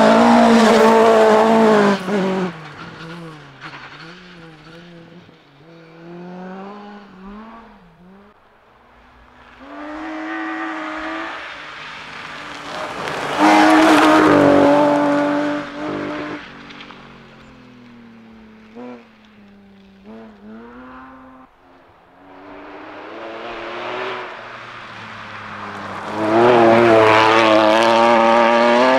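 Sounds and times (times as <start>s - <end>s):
tyres rasping on gravel: 0.0s - 6.6s, 9.5s - 21.1s
rally car engine passing: 0.0s - 28.9s.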